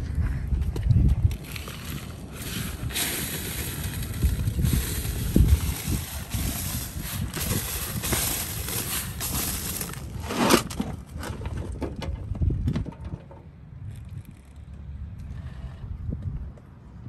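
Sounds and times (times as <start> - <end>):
shovel scraping dirt on steel: 1.3 - 11.5
sandy soil pouring from bucket: 1.4 - 10.8.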